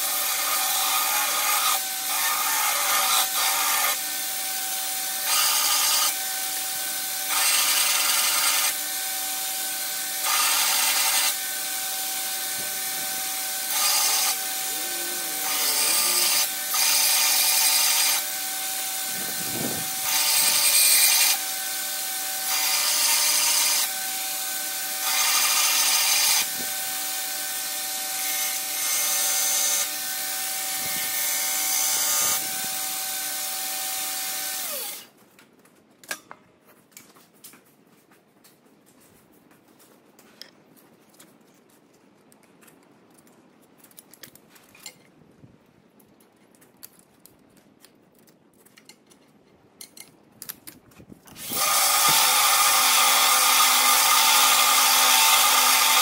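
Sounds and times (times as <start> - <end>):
belt grinder whining: 0.0 - 35.1, 51.3 - 56.0.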